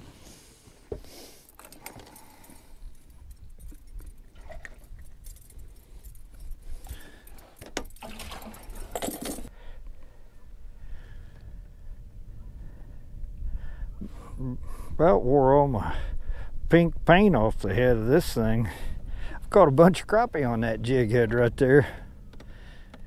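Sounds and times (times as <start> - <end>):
metal clips clinking and jangling: 1.5 - 9.5.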